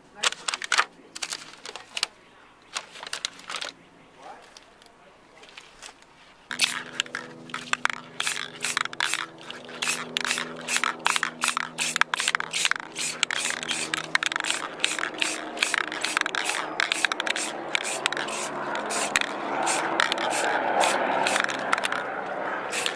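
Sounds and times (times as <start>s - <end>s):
spray paint can hissing: 6.5s - 22.1s, 22.7s - 22.9s.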